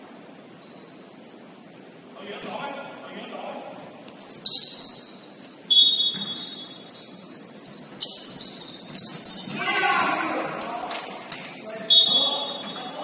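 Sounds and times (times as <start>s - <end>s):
basketball shoes squeaking: 0.5s - 1.4s, 3.6s - 10.6s, 11.3s - 13.0s.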